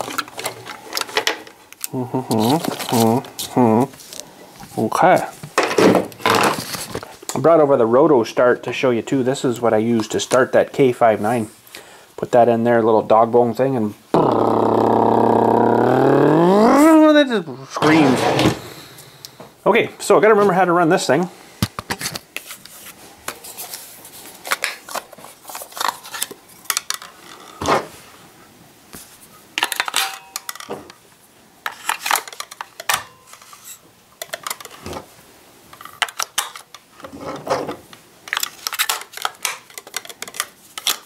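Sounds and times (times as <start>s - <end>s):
plastic and metal parts clattering: 0.0s - 1.6s, 5.4s - 7.2s, 24.4s - 27.9s, 29.6s - 31.0s, 31.6s - 35.1s, 35.7s - 41.0s.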